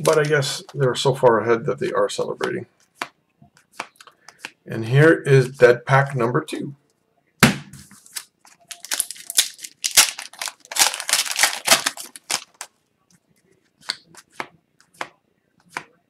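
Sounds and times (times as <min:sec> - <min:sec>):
foil wrapper tearing and crinkling: 0:08.0 - 0:12.7.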